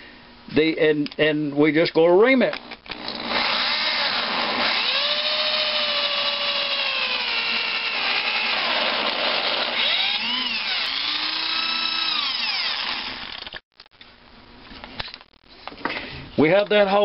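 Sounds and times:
power drill whining: 2.6s - 13.6s.

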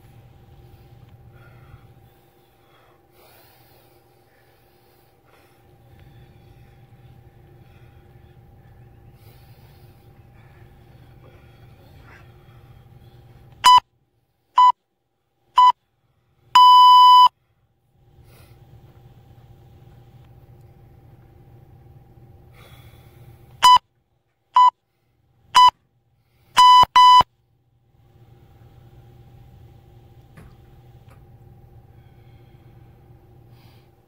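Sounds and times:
electronic interval timer beeping: 13.6s - 13.8s, 14.6s - 14.8s, 15.6s - 15.8s, 16.6s - 17.3s, 23.6s - 23.8s, 24.6s - 24.8s, 25.6s - 25.8s, 26.6s - 27.3s.

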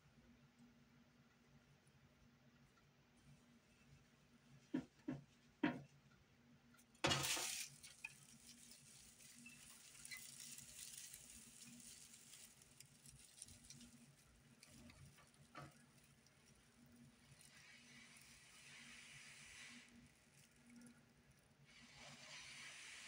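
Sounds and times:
dry grass rustling and crackling: 7.0s - 21.7s.

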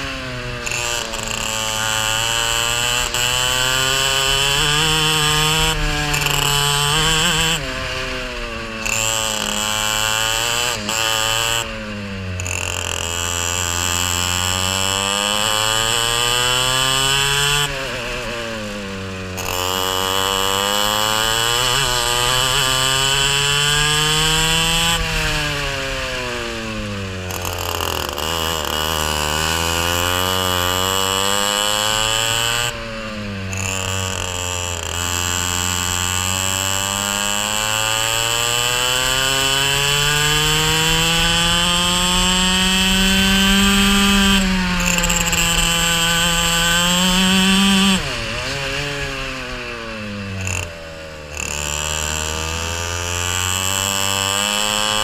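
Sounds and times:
racing kart engine revving: 0.0s - 55.0s.

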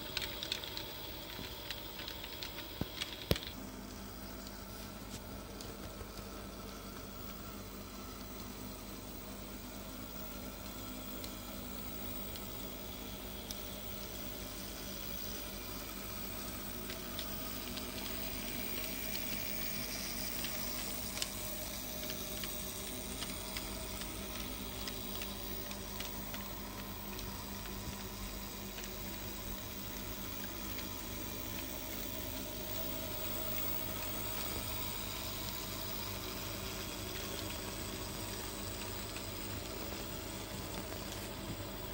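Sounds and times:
model train rolling on track: 0.0s - 0.8s, 13.5s - 41.2s.

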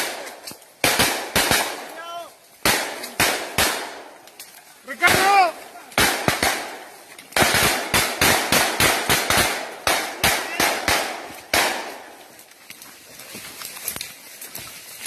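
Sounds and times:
rapid close gunshots: 0.8s - 1.9s, 2.6s - 4.1s, 5.0s - 12.1s.

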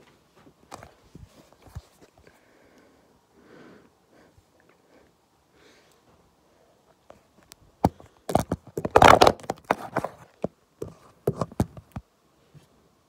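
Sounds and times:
phone being handled: 7.4s - 12.0s.

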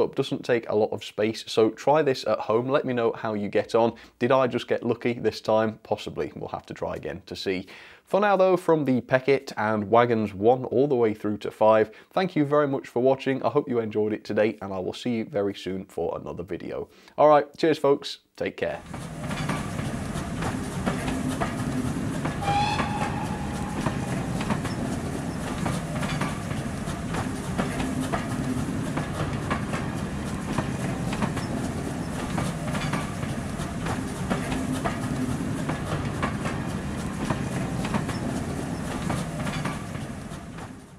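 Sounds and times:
model train rolling hum: 18.8s - 40.9s
wheels clicking over rail joints: 18.8s - 40.9s
train wheel squeal: 22.2s - 28.2s, 36.6s - 40.8s.

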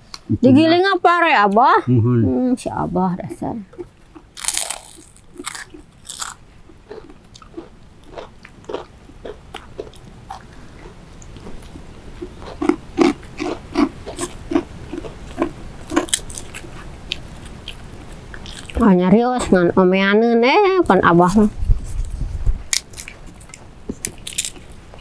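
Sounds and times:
crunchy chewing: 3.7s - 18.8s, 21.9s - 25.0s.

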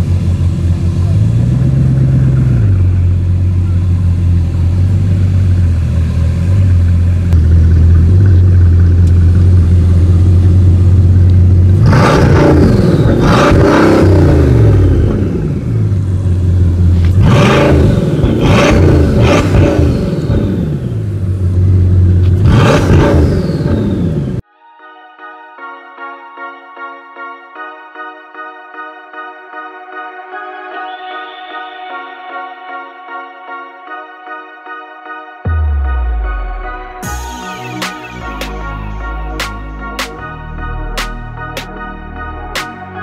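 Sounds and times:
car engine idling: 0.0s - 24.4s
engine revving in blips: 11.2s - 24.4s.

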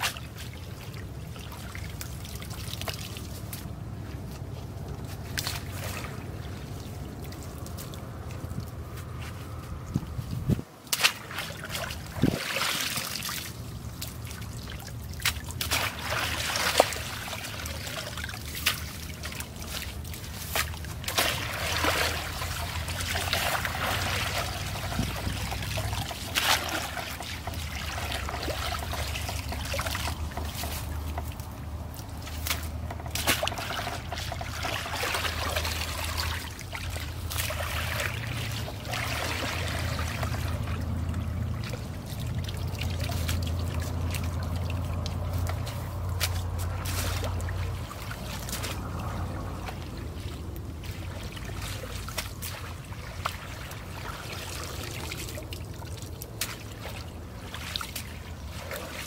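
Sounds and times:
stream water splashing: 0.0s - 59.0s
water running through basket: 0.0s - 59.0s.

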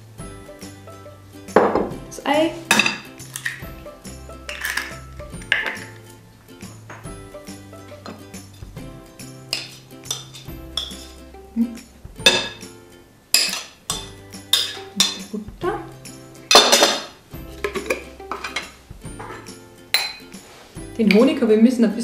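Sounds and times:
background music: 0.0s - 22.0s
plate set down: 1.6s - 1.9s.

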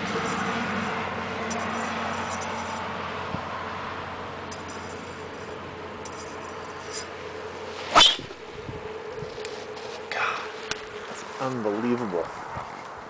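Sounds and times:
golf club striking ball: 7.8s - 8.8s.

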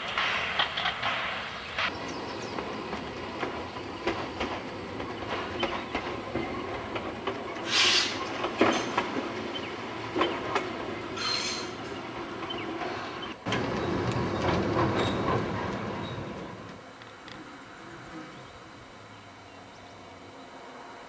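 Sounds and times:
wheels clicking over rails: 0.0s - 16.8s
steam train rumbling: 0.0s - 17.0s
steam hissing: 7.4s - 8.4s.

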